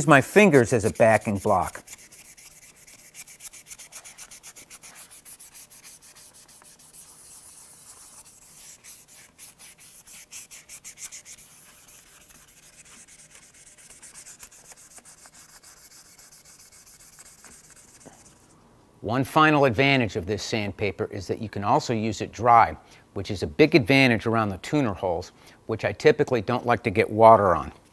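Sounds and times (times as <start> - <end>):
hand sanding with abrasive sheet: 0.0 - 18.5.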